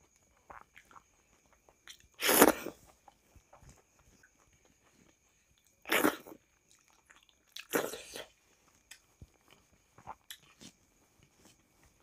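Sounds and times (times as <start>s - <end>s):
chewing food: 0.0s - 12.0s.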